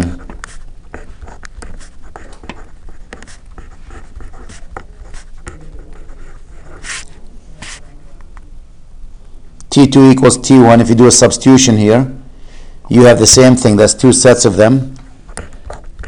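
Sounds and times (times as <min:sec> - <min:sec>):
pen scratching on paper: 0:00.0 - 0:07.8
short breath: 0:12.3 - 0:12.9.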